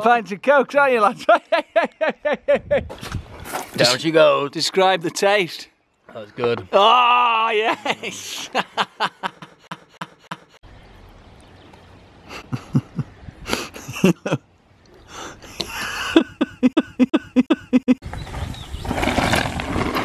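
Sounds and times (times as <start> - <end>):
man laughing: 1.1 - 3.0, 7.5 - 10.6, 12.3 - 14.4, 15.1 - 18.0.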